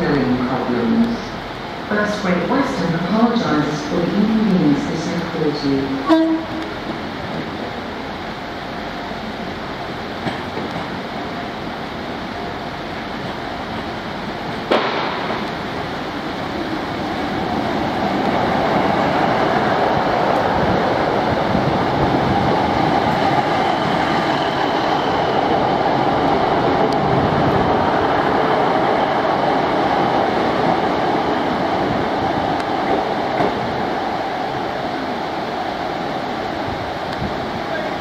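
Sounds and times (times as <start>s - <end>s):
diesel train passing: 0.0s - 38.0s
sharp knock: 14.7s - 15.4s.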